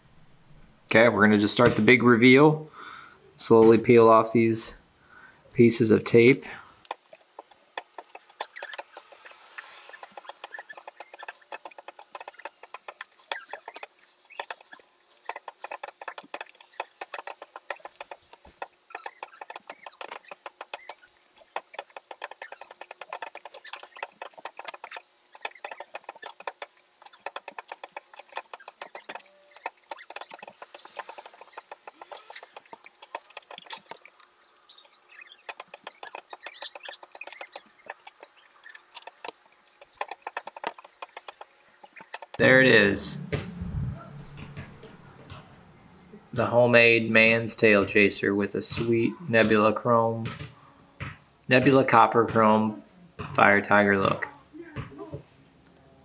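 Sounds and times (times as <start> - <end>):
knife tip scratching tape: 6.9 - 34.1, 34.7 - 38.3, 39.0 - 42.4.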